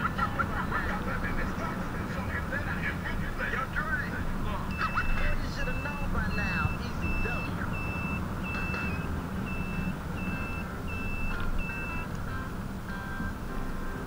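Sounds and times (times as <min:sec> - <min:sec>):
wind and road rumble: 0:00.0 - 0:14.0
high electronic beeping: 0:04.4 - 0:12.1.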